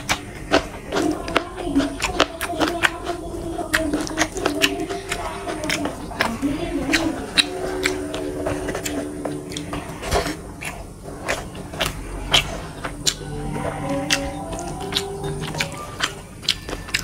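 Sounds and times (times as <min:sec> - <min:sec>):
wet chewing and mouth smacking: 0:00.0 - 0:17.0
low wavering tone: 0:13.2 - 0:16.2.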